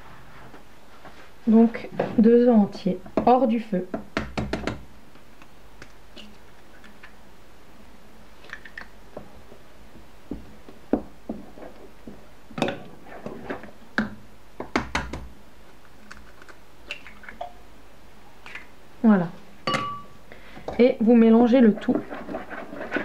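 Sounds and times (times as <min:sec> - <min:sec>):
eggs cracked on a pot: 0:08.4 - 0:09.0, 0:16.0 - 0:17.6
wooden spoon stirring semolina: 0:09.1 - 0:14.0, 0:20.9 - 0:23.0.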